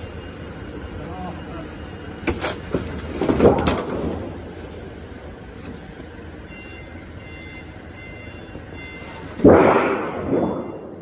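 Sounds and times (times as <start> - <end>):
factory background hum: 0.0 - 11.0
faint short beeps: 6.4 - 9.4, 10.2 - 11.0.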